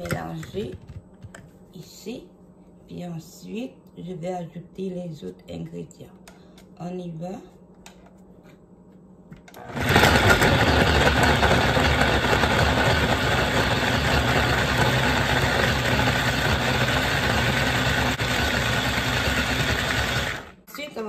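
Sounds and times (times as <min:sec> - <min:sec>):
blender running: 0:09.6 - 0:20.6.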